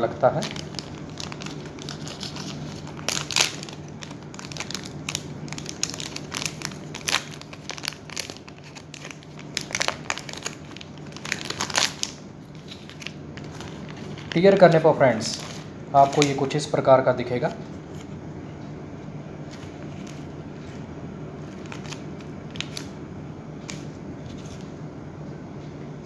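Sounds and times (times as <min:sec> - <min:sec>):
plastic wrapper crinkling: 0:00.2 - 0:16.7, 0:21.4 - 0:23.0.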